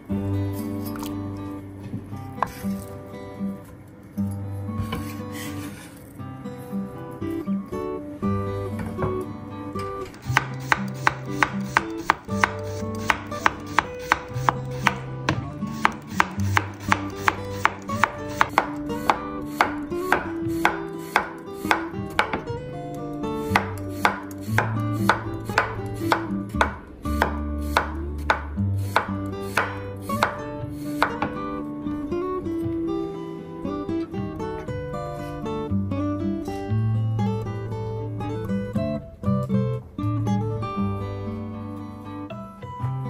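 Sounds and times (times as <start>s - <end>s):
acoustic guitar music: 0.0s - 43.0s
knife chopping on cutting board: 10.1s - 22.5s, 23.6s - 30.4s, 31.0s - 31.4s.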